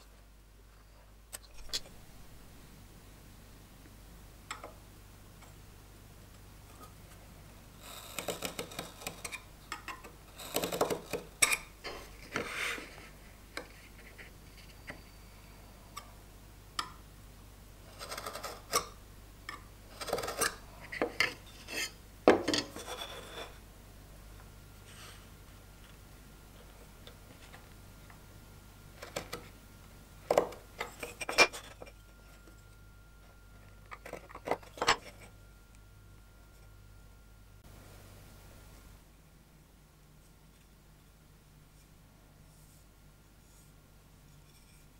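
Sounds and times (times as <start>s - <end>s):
knife scoring wood: 8.0s - 9.4s, 17.9s - 18.8s, 19.9s - 22.0s.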